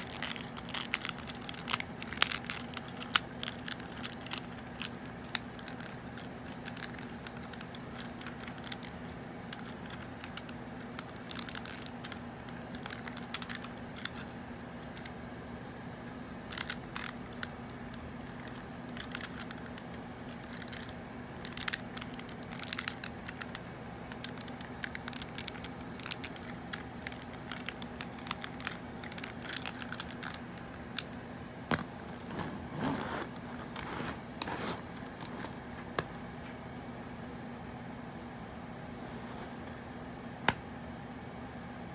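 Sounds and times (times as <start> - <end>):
plastic toy parts clicking: 0.0 - 14.3, 16.5 - 31.2
toy car scraping on tabletop: 32.3 - 35.6.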